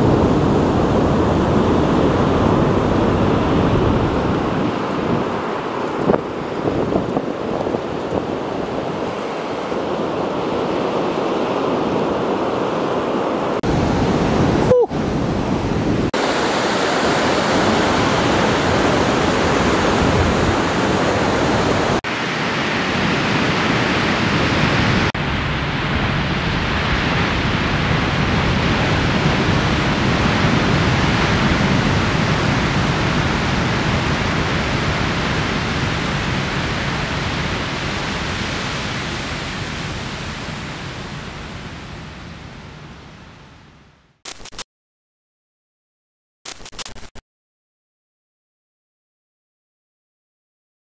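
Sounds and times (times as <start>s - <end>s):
ocean surf breaking: 0.0s - 43.4s.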